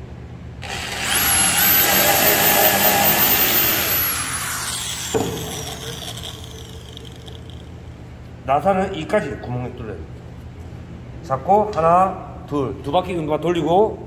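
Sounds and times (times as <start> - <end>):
electric drill whining: 0.6 - 7.5.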